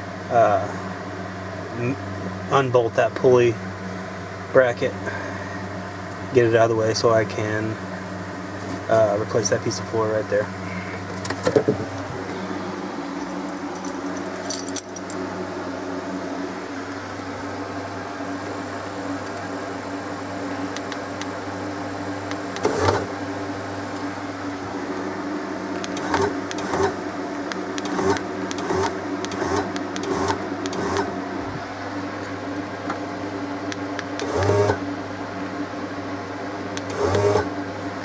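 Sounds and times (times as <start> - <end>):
electric motor running: 22.0 - 31.4, 33.6 - 35.0, 36.7 - 37.6.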